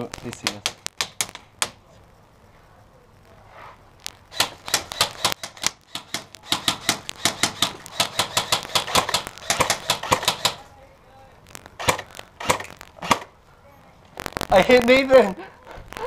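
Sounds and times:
airsoft gunfire clicks: 4.3s - 10.7s, 11.8s - 13.3s.

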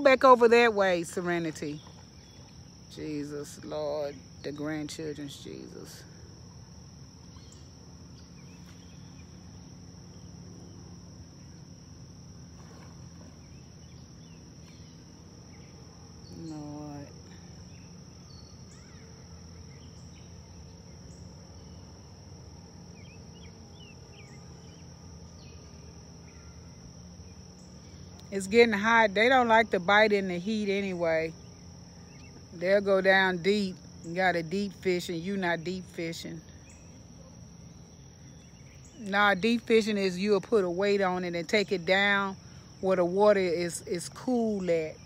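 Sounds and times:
insects droning: 0.0s - 45.0s.

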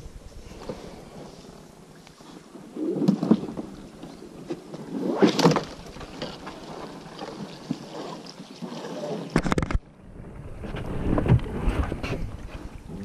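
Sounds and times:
oars splashing through water: 0.4s - 13.0s.

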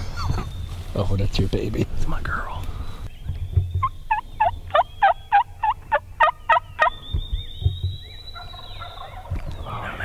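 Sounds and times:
faint turkey calling: 2.2s - 10.0s
turkey yelping: 3.8s - 7.4s, 8.3s - 10.0s.

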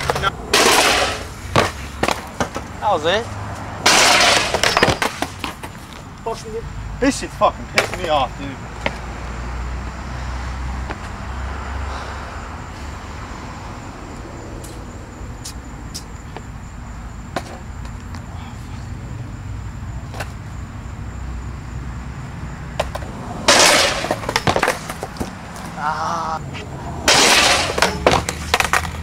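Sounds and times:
skateboard hitting concrete: 0.0s - 2.8s, 3.8s - 6.0s, 7.8s - 9.0s, 17.4s - 17.6s, 22.8s - 25.8s, 27.0s - 29.0s.

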